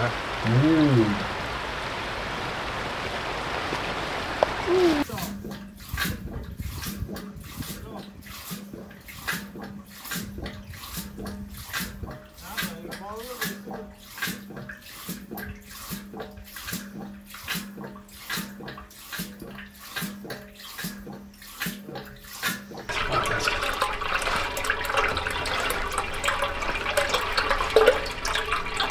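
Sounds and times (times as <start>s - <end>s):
water splashing into basin: 0.0s - 28.9s
pump valve knocking: 5.2s - 17.2s.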